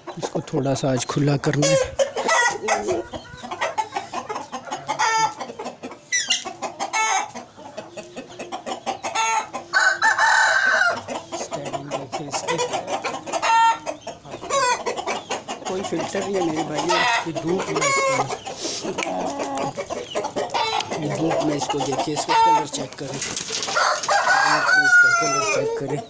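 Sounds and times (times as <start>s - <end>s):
chickens clucking: 0.0s - 26.0s
rooster crowing: 9.7s - 11.0s, 23.7s - 25.8s.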